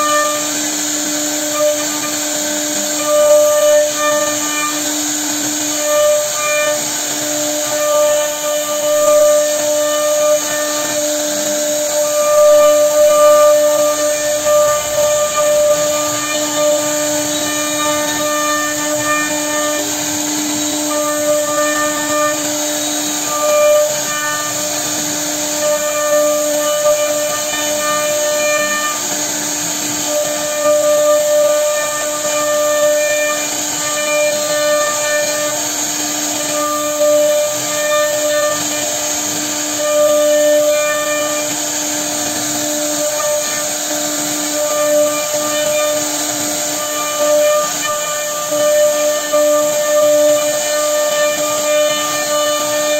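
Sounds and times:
router bit hissing in wood: 0:00.0 - 0:52.9
router spindle whining: 0:00.0 - 0:52.9.

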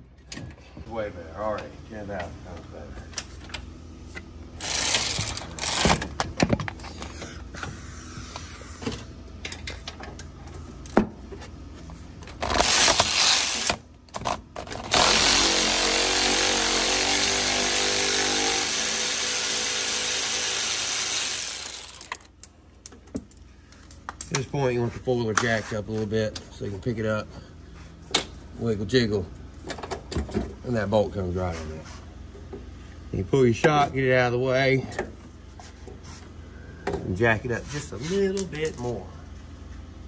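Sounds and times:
power ratchet running: 0:04.6 - 0:06.0, 0:12.4 - 0:13.8, 0:14.8 - 0:22.3.

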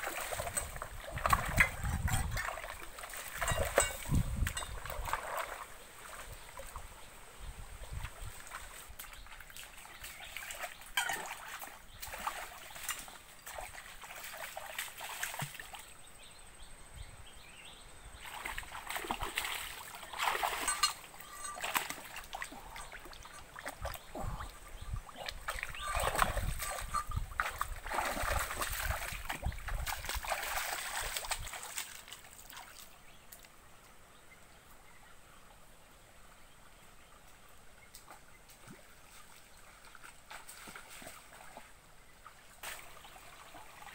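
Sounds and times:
splashing in shallow water: 0:00.0 - 0:07.1, 0:07.9 - 0:16.0, 0:18.2 - 0:33.0, 0:38.0 - 0:43.9
stream trickling: 0:00.0 - 0:16.6, 0:17.3 - 0:43.9.

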